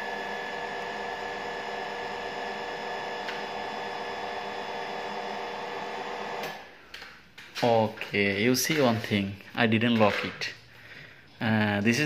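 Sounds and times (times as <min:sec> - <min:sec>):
hydraulic pump humming: 0:00.0 - 0:06.7.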